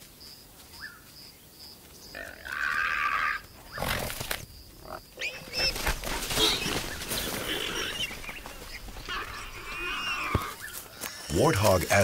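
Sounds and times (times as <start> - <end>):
high squeals and cries: 5.2 - 10.8
rustling through dry grass: 5.2 - 12.0.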